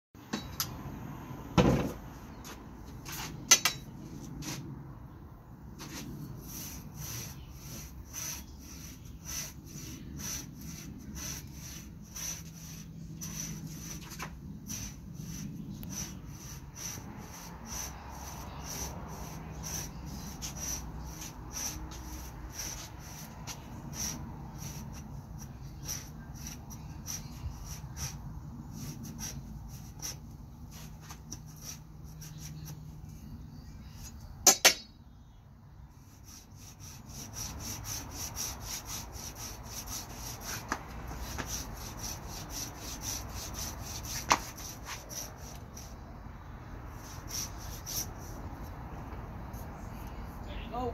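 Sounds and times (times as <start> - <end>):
blade scraping tree bark: 5.8 - 32.8, 36.1 - 46.0, 46.9 - 48.7.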